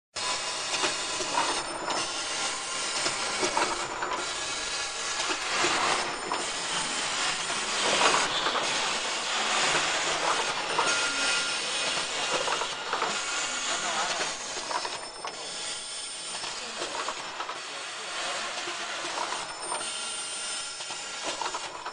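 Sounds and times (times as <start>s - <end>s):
packaging machine hissing: 0.2s - 21.9s.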